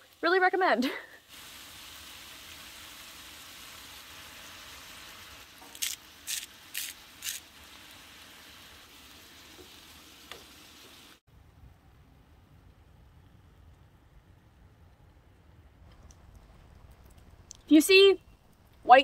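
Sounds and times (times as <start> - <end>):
vegetables sizzling in a frying pan: 0.0 - 11.2
seasoning grinder strokes: 3.0 - 11.1.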